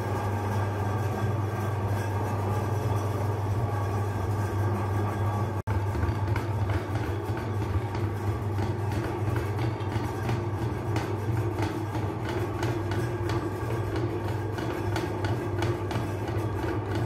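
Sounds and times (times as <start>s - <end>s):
machine clicks and rattles: 5.7s - 17.0s.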